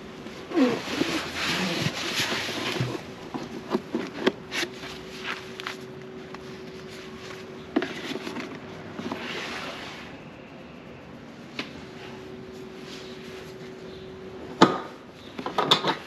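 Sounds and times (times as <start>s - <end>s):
glove rubbing on plastic: 0.6s - 4.0s.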